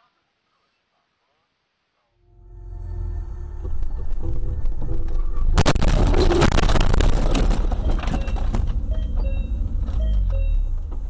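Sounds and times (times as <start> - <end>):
metal crunching and crackling: 4.6 - 8.9
car crash impact: 5.2 - 9.9.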